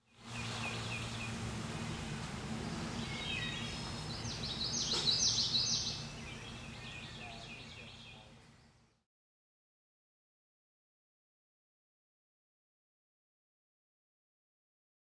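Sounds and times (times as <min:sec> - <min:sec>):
low steady hum: 0:00.0 - 0:09.0
songbirds chirping: 0:00.0 - 0:09.0.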